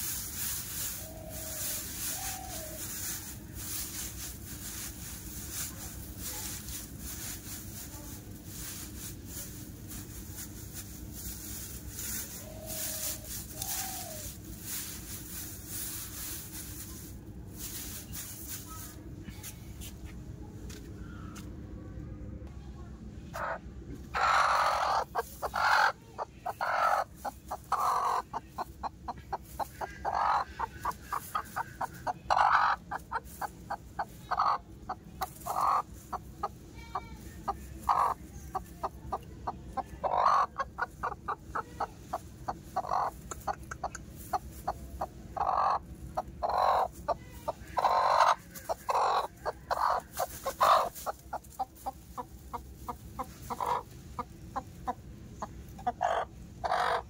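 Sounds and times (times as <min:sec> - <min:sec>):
chickens clucking: 0:00.0 - 0:19.2, 0:23.3 - 0:57.0
loud chicken calls: 0:23.4 - 0:35.9, 0:45.4 - 0:51.2, 0:55.8 - 0:57.0.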